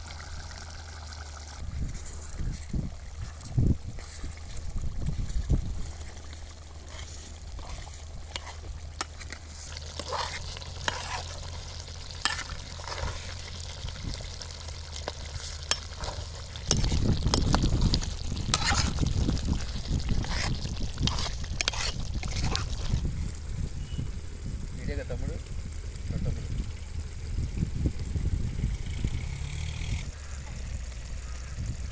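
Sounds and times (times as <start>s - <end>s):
ladle stirring pot: 3.3s - 23.4s.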